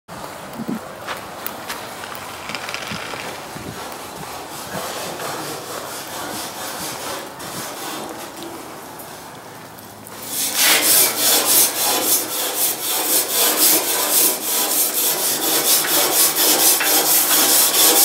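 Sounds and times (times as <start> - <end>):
grill brush scrubbing grates: 10.2 - 18.0.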